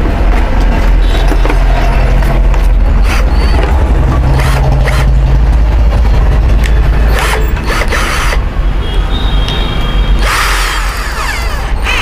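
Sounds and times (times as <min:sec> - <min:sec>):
handling rumble: 0:00.0 - 0:07.7
drill chuck ratchet clicking: 0:07.1 - 0:08.4, 0:10.2 - 0:12.0.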